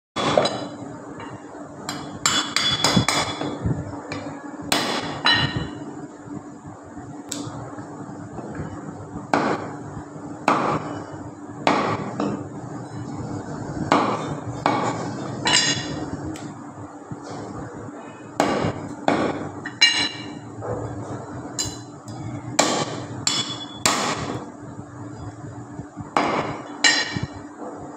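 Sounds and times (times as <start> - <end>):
knife chopping meat and bone: 11.7 - 12.1, 22.6 - 24.4.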